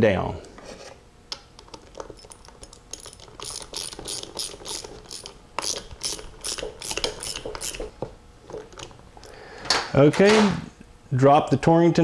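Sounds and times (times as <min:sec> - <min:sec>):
torque wrench ratchet clicking: 0:02.9 - 0:07.8.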